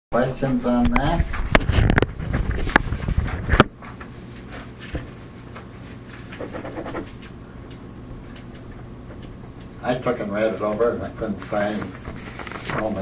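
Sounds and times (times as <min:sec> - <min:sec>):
steady low hum: 0:00.2 - 0:13.0
faint shuffling: 0:10.4 - 0:13.0.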